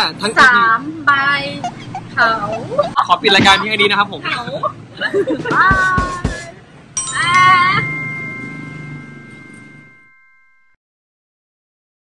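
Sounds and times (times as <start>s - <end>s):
bell-like chime ringing: 7.0s - 10.8s.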